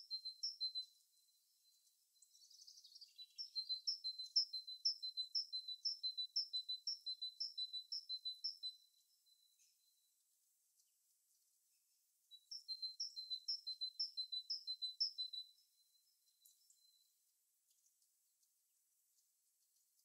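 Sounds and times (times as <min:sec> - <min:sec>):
small songbird singing: 0:00.0 - 0:10.1, 0:12.2 - 0:18.1.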